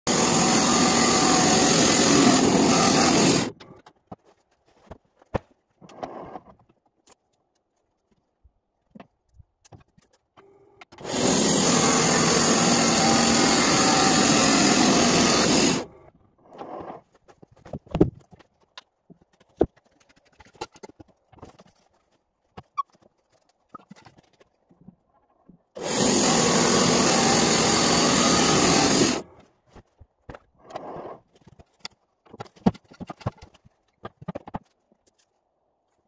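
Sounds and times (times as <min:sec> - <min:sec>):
band sawmill sawing log: 0:00.1 - 0:03.6, 0:11.0 - 0:15.9, 0:25.8 - 0:29.2.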